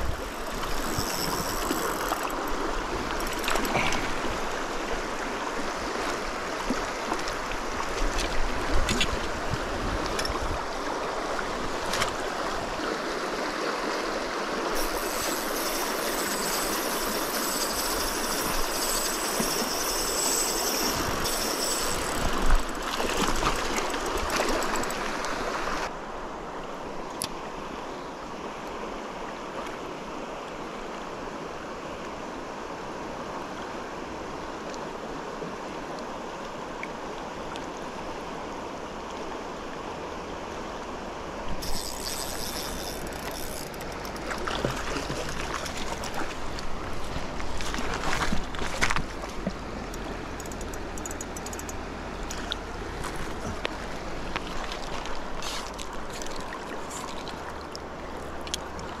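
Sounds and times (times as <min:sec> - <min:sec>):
river rushing over rocks: 0:00.0 - 0:17.4.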